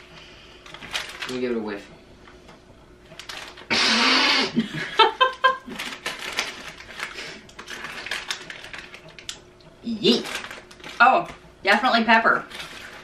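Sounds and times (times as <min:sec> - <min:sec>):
plastic snack bag crinkling: 0:00.6 - 0:01.7, 0:03.2 - 0:03.7, 0:05.4 - 0:13.0
people laughing: 0:04.6 - 0:05.8.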